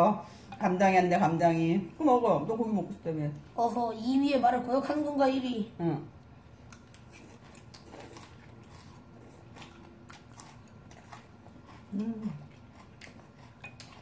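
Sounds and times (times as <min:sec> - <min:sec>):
noodles slurped and chewed: 0:06.7 - 0:14.0
chopsticks and spoon clicking bowls: 0:13.4 - 0:14.0.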